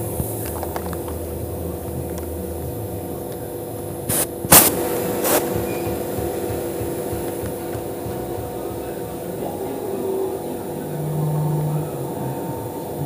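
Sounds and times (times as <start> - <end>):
router spindle humming: 0.0 - 13.0
short loud noise bursts: 4.1 - 8.6.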